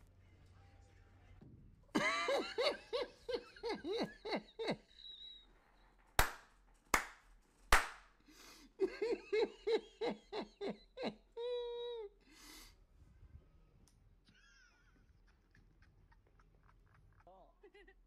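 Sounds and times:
person laughing hard: 2.0 - 5.4, 8.8 - 12.1
sharp claps: 6.2 - 8.2.

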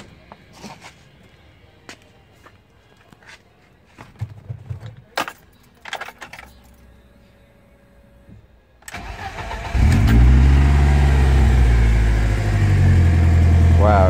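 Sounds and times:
car engine starting and idling: 7.7 - 14.0.

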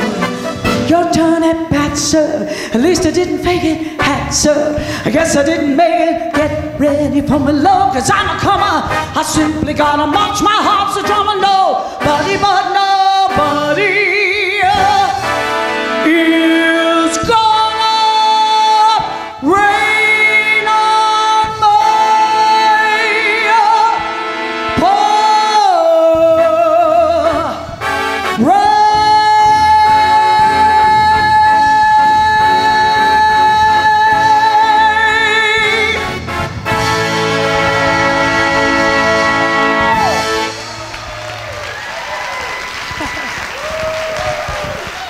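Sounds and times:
live band with keyboard and drums: 0.0 - 2.7, 23.5 - 45.0
woman belting a show tune: 0.0 - 24.0, 24.8 - 27.8, 28.4 - 36.1.

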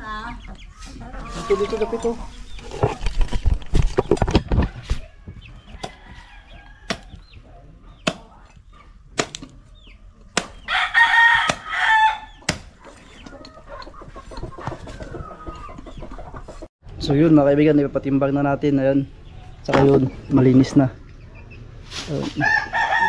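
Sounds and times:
hens clucking: 0.0 - 16.7
rooster crowing: 10.7 - 12.4, 22.4 - 23.0.

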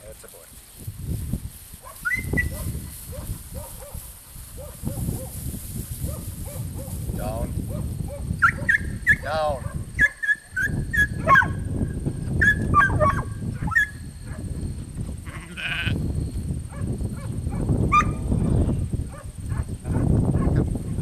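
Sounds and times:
short high calls: 1.9 - 2.7
sheep bleating: 15.2 - 16.0.

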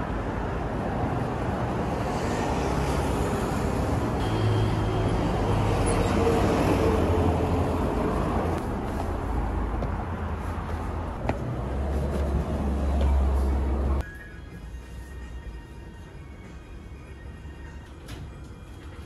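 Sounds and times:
vehicle engine hum passing: 0.0 - 14.0
road traffic noise: 0.0 - 19.0.

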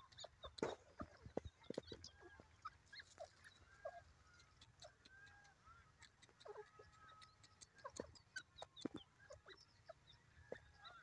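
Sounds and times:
soft ticks: 0.0 - 0.7, 4.1 - 9.1
faint birdsong: 0.0 - 11.0.

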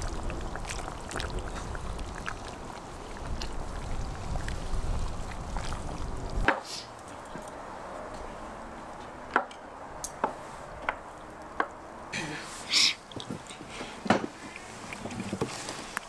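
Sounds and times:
ladle sloshing soup: 0.0 - 6.4, 14.3 - 16.0.

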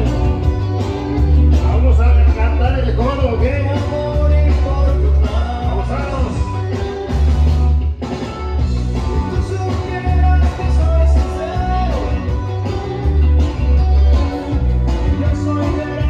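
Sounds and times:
heavy bass beat: 0.0 - 7.9, 8.6 - 16.0
loud dance music with singing: 0.0 - 16.0.

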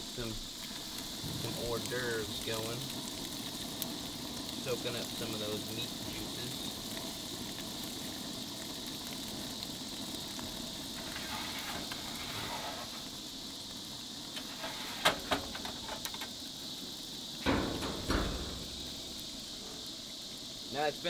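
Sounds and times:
gas broiler hissing: 0.0 - 21.0
dull thumps: 17.4 - 19.2.

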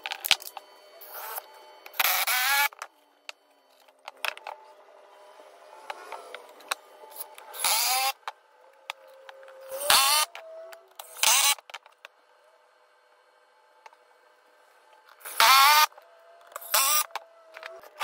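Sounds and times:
knocks and clicks of tools: 1.8 - 4.7
impact driver driving screws: 15.2 - 16.0.

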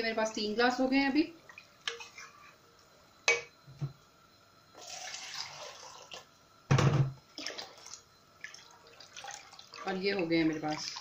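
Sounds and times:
water splashing into pot: 7.3 - 11.0.

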